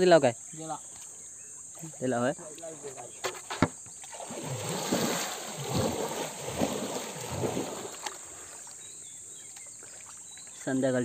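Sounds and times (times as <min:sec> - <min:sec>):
water splashing by hand: 0:01.8 - 0:08.8.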